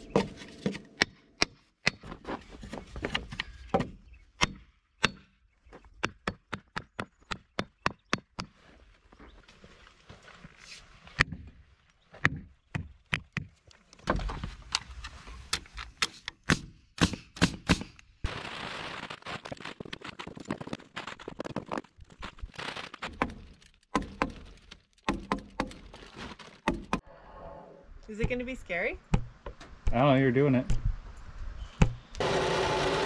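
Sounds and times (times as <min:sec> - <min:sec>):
heavy paper crinkling: 0:18.3 - 0:25.0, 0:25.8 - 0:26.7
sledgehammer knocking on wood: 0:29.1 - 0:30.0.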